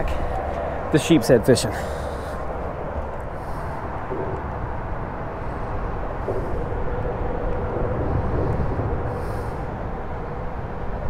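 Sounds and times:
faint steady hum: 0.0s - 11.0s
low rumble of traffic: 0.0s - 11.0s.

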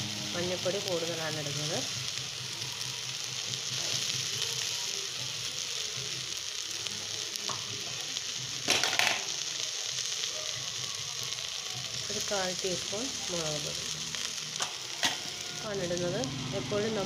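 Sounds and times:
leaves sizzling in hot oil: 0.0s - 17.0s
pot clatter: 8.7s - 9.3s.

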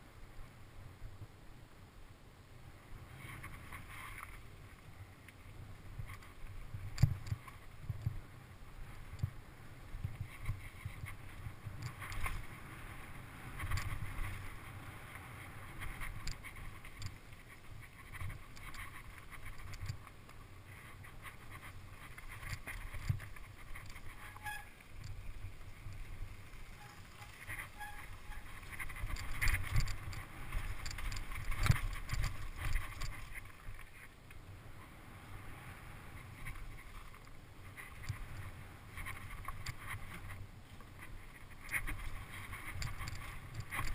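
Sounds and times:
bike tyres on dirt and gravel: 0.0s - 43.9s
wind rumbling on microphone: 0.0s - 43.9s
bike rattles and knocks: 5.9s - 8.2s, 9.0s - 34.1s, 36.2s - 43.9s.

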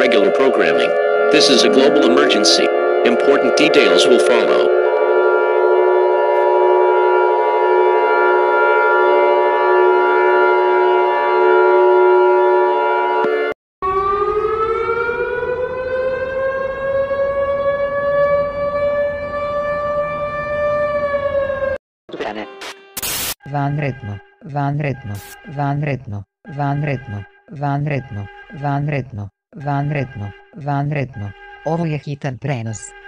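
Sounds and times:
electronic alarm chord: 0.0s - 14.6s.

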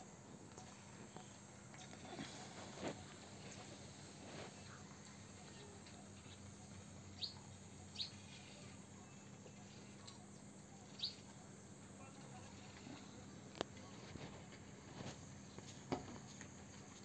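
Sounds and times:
high bird chirps: 7.2s - 8.6s, 10.9s - 11.2s.

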